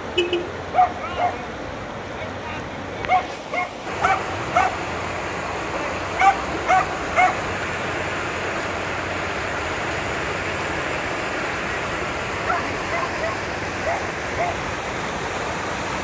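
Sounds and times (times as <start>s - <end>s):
floodwater rushing: 0.0s - 16.0s
dog barking: 0.7s - 1.4s, 3.1s - 4.8s, 6.2s - 7.4s, 12.5s - 14.6s.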